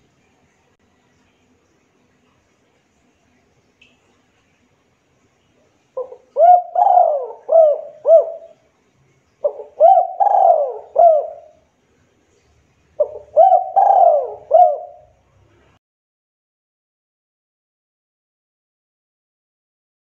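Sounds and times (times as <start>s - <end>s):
dove cooing: 6.0s - 8.6s, 9.4s - 11.6s, 13.0s - 15.2s.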